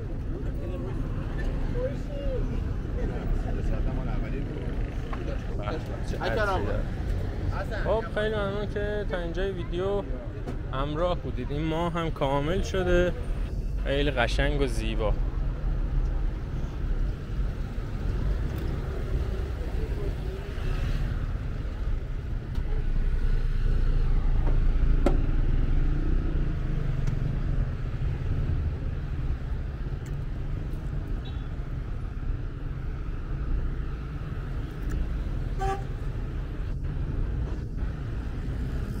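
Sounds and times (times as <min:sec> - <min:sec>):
cars passing with low rumble: 0:00.0 - 0:39.0
car horn toot: 0:35.6 - 0:36.0.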